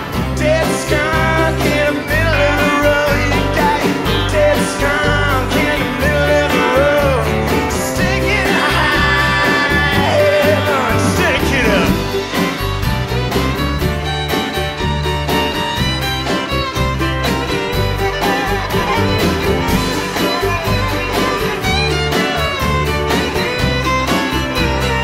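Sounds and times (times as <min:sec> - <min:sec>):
acoustic guitar: 0:00.0 - 0:25.0
drums: 0:00.0 - 0:25.0
electric bass: 0:00.0 - 0:25.0
fiddle: 0:00.0 - 0:25.0
pedal steel guitar: 0:00.0 - 0:25.0
man singing lead: 0:00.1 - 0:12.2.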